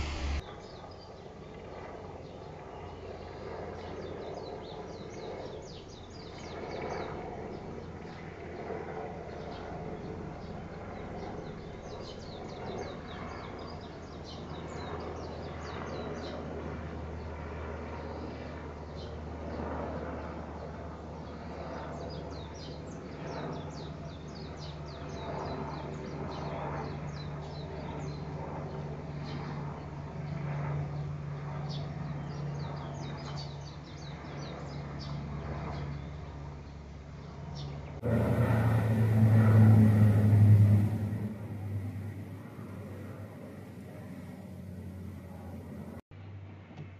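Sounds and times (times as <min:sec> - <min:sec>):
birds chirping: 0:00.0 - 0:00.4
airplanes droning overhead: 0:00.0 - 0:46.9.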